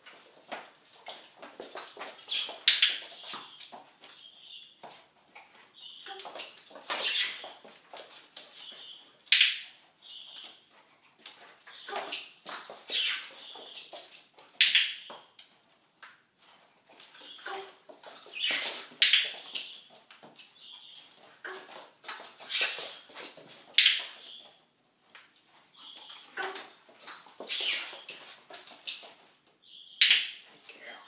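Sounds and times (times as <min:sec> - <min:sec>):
puppy moving about: 0:16.4 - 0:24.6.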